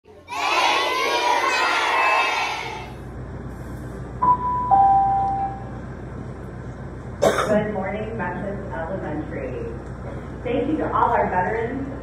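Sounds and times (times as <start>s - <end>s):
children's voices echoing: 0.1s - 3.0s
low hum: 2.8s - 11.2s.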